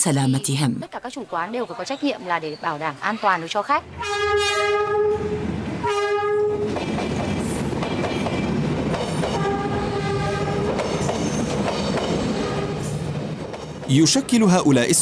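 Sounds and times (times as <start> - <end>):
train rumbling over rails: 2.7 - 15.0
train horn blasts: 3.9 - 6.8, 9.3 - 10.8.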